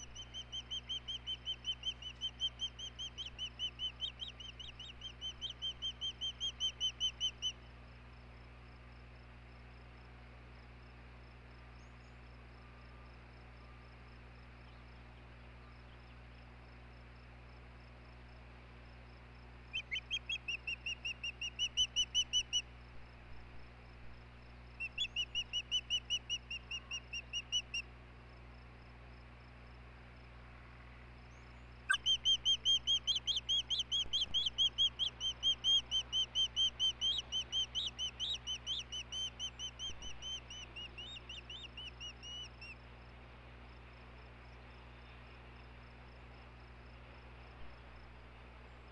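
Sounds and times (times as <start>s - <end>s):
osprey high whistled chirps: 0.0s - 7.6s, 19.8s - 22.7s, 24.8s - 27.8s, 31.3s - 42.8s.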